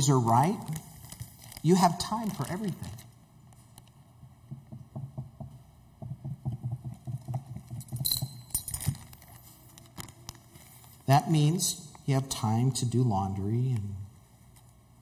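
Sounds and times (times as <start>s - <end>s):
plastic bag crinkling: 0.3s - 3.1s
glass jar knocks and taps: 4.5s - 8.9s.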